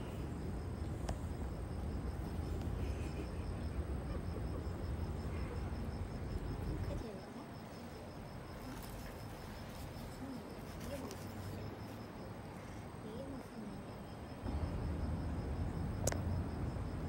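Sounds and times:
insect chirping: 0:00.0 - 0:17.0.

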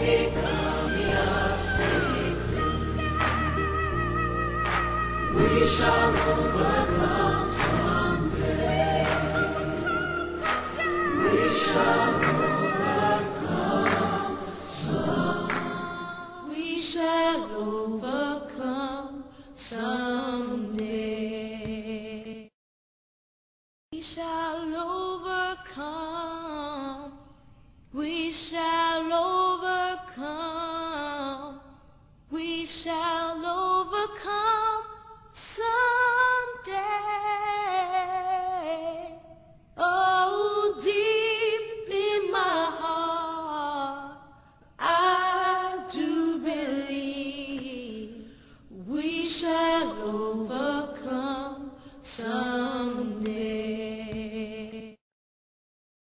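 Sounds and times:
woman singing unaccompanied: 0:24.0 - 0:27.3, 0:32.3 - 0:44.2, 0:44.8 - 0:55.0.

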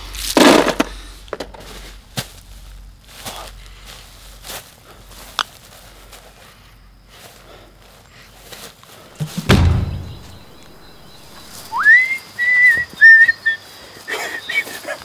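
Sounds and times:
deep heavy thud with rumble: 0:09.2 - 0:11.7
person whistling: 0:11.4 - 0:13.6.

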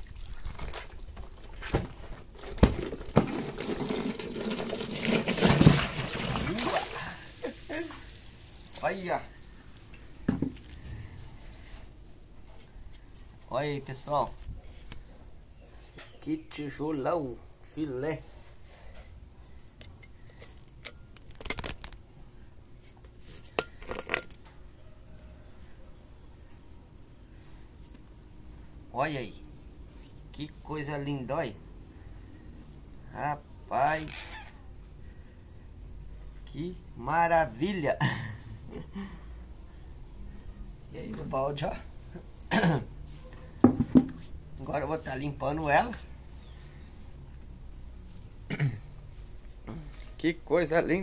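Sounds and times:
water sloshing and pouring: 0:00.0 - 0:08.9
plastic bucket knocking: 0:01.8 - 0:06.7, 0:43.6 - 0:44.2.

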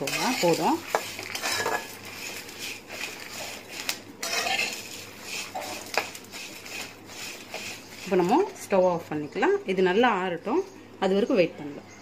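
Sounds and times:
spatula clinking against pan: 0:00.0 - 0:02.0
spatula scraping a pan: 0:00.0 - 0:08.8.

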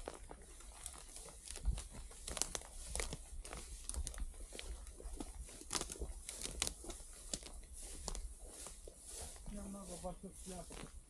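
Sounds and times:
rustling and crackling: 0:00.0 - 0:11.0.

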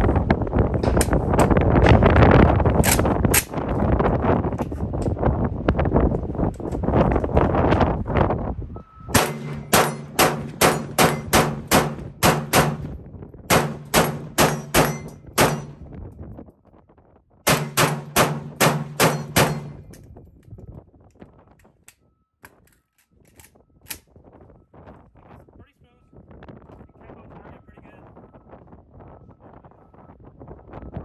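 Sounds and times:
rapid rifle shots: 0:09.2 - 0:12.9, 0:13.5 - 0:15.8, 0:17.5 - 0:19.8.

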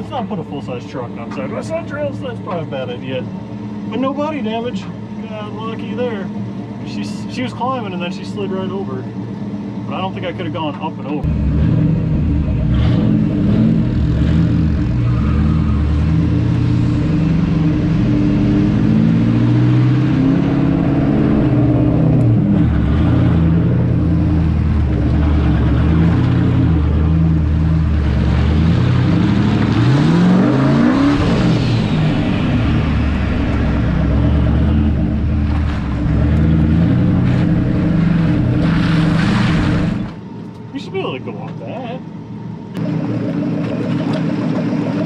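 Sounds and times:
truck engine revving under load: 0:11.2 - 0:40.7.

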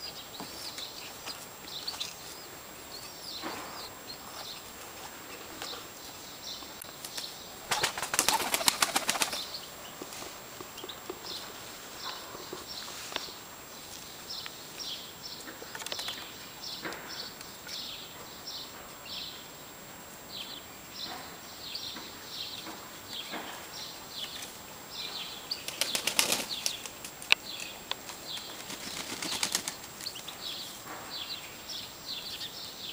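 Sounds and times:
pigeon wings flapping: 0:07.0 - 0:09.5, 0:25.7 - 0:27.2, 0:28.1 - 0:29.9.

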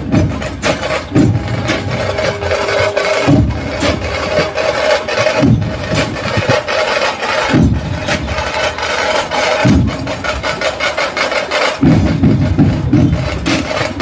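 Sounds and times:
music with pulsing beat: 0:00.0 - 0:10.3.

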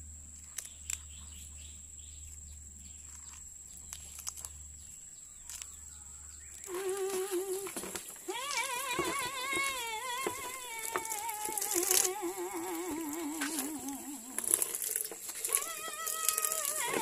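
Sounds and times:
wet feathers tearing: 0:06.6 - 0:17.0
person humming a slow tune: 0:06.7 - 0:17.0.

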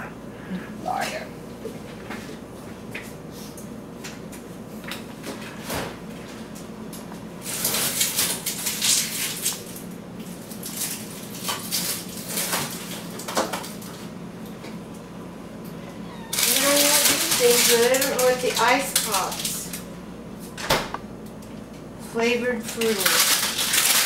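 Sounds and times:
frozen packages rustling and clattering: 0:07.4 - 0:14.1, 0:16.2 - 0:19.8, 0:22.6 - 0:24.0.

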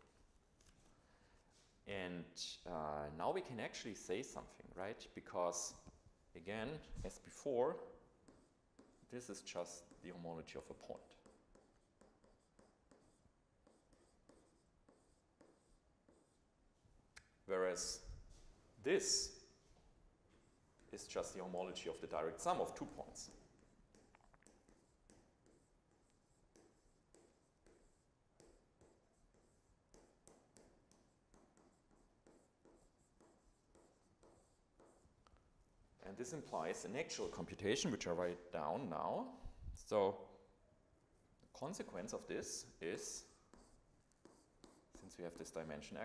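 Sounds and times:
stylus writing on tablet screen: 0:04.0 - 0:19.6, 0:20.2 - 0:39.1, 0:40.4 - 0:46.0.

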